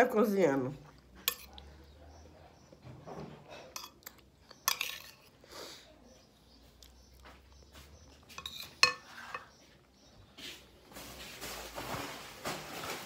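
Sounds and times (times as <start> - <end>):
spoon scraping glass bowl: 1.2 - 1.6, 3.6 - 5.4, 8.2 - 9.6.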